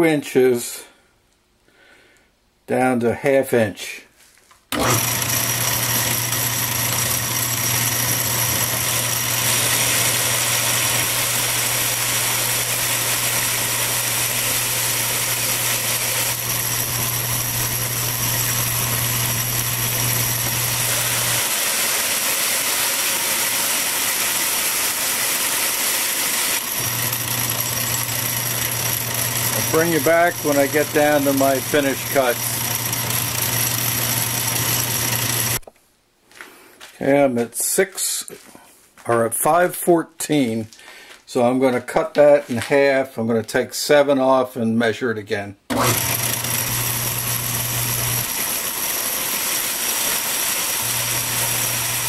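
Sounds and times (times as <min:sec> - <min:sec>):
low drive hum: 0:04.8 - 0:21.4, 0:26.7 - 0:35.7, 0:45.7 - 0:48.4, 0:50.8 - 0:52.0
metal lathe machine drone: 0:04.8 - 0:35.6, 0:45.7 - 0:52.0
hiss of cutting tool: 0:09.4 - 0:16.6, 0:17.4 - 0:26.7, 0:47.8 - 0:52.0.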